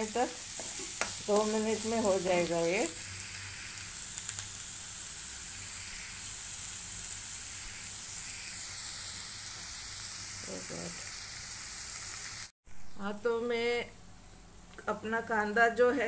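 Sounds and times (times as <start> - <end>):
onions sizzling in hot oil: 0.0 - 12.6.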